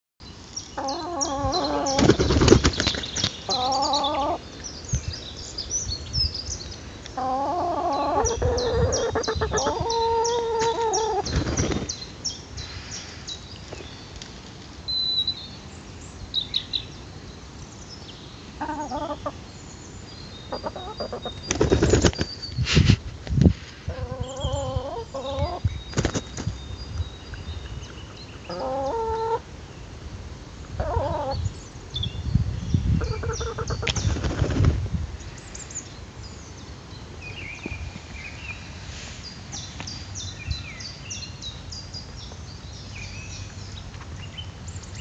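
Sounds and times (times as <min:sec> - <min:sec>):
hens calling: 0:00.8 - 0:02.4, 0:03.4 - 0:04.4, 0:07.2 - 0:11.4, 0:18.6 - 0:19.4, 0:20.5 - 0:21.3, 0:23.9 - 0:25.6, 0:28.5 - 0:29.4
wing-flapping: 0:01.9 - 0:03.4, 0:21.5 - 0:22.4, 0:33.8 - 0:34.9.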